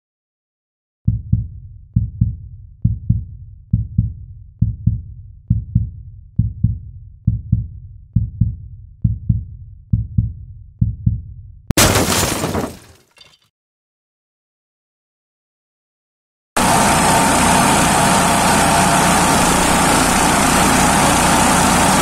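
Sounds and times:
heartbeat thumps: 1.1 - 11.7.

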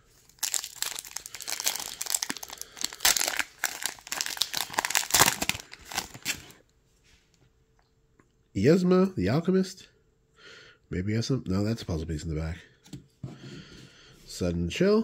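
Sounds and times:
plastic wrapper tearing and crinkling: 0.1 - 6.6.

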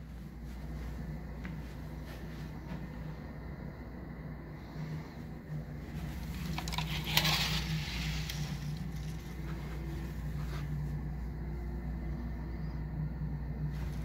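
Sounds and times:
steady low hum: 0.0 - 14.0
curtain rustling: 4.8 - 11.3.

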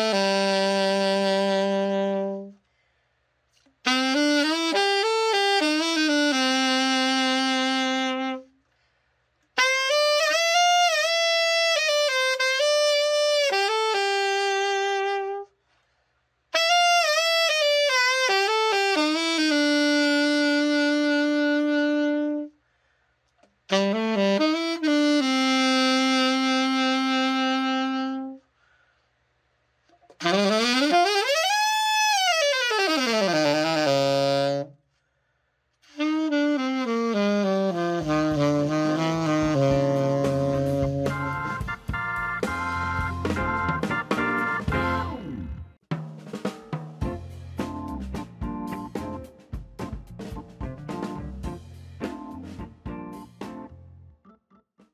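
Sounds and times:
alto saxophone playing: 0.0 - 2.6, 3.8 - 8.6, 9.6 - 15.6, 16.6 - 22.6, 23.7 - 28.5, 30.1 - 34.9, 35.8 - 45.8.

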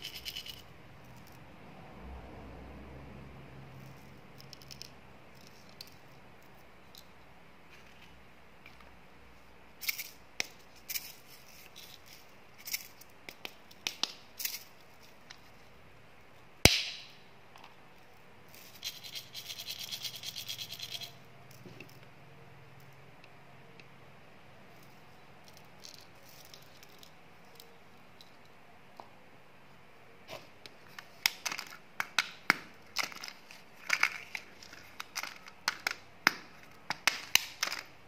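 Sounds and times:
candy pellets rattling: 0.0 - 0.6, 18.5 - 21.2
cap snapping off: 16.7 - 17.1.

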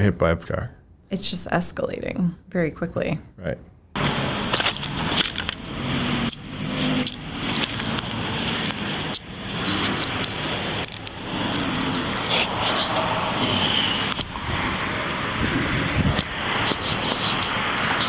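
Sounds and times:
road traffic noise: 3.9 - 18.0
clothing rubbing on microphone: 6.8 - 14.6, 15.4 - 18.0.

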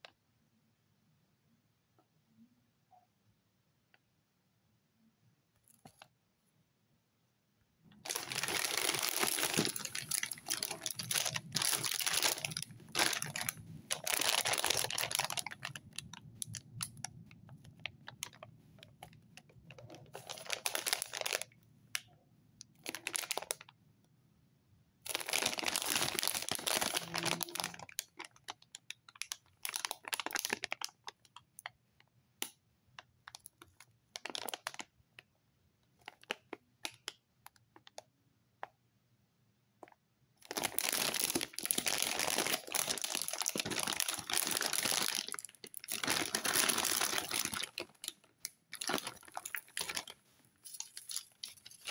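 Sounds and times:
plastic packaging crinkling: 8.0 - 21.6, 22.8 - 23.7, 25.1 - 31.6, 33.3 - 34.9, 40.4 - 51.9.

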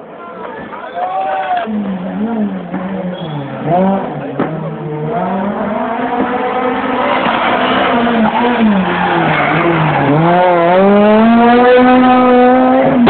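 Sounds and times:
car engine braking and accelerating: 1.6 - 13.0.

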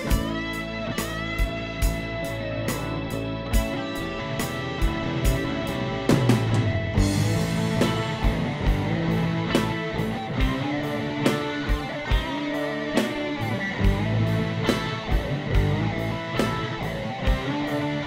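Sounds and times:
guitar music: 0.0 - 18.0
steady drum beat: 0.0 - 18.0.

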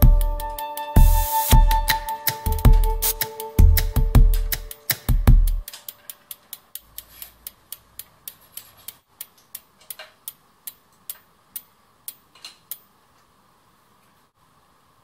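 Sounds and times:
bicycle part ticking: 3.8 - 12.9.

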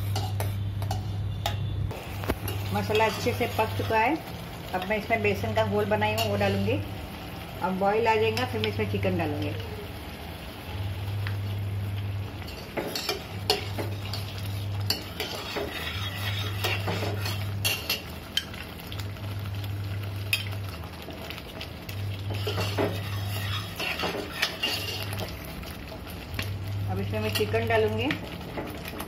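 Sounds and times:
ladle scraping metal pot: 12.5 - 18.0, 22.3 - 25.2.

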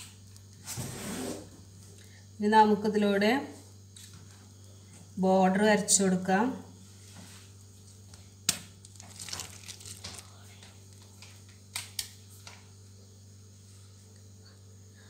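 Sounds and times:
low steady hum: 0.0 - 15.0
piping bag crackling: 8.0 - 12.2.

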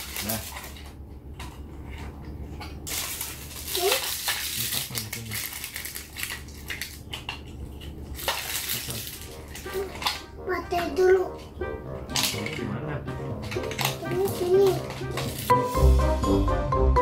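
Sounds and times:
hard plastic toy parts clattering: 2.9 - 7.4, 8.2 - 10.3, 12.1 - 12.7, 13.4 - 15.5.

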